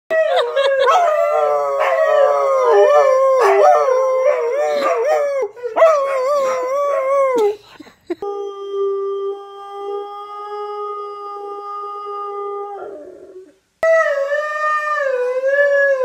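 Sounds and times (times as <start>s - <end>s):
dogs howling: 0.1s - 7.4s.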